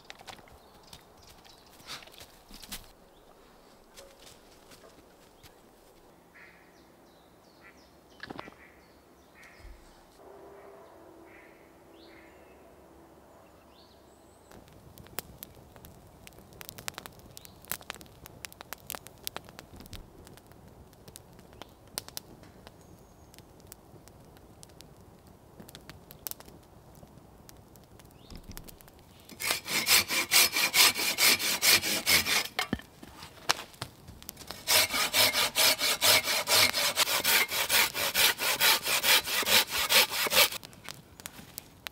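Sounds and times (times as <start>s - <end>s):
clicks and crackles: 0.0s - 3.0s, 14.5s - 29.5s, 32.4s - 34.7s, 40.5s - 41.9s
faint bird calls: 6.3s - 6.9s, 7.5s - 12.6s
hand saw cutting wood: 29.3s - 32.8s, 34.5s - 40.6s.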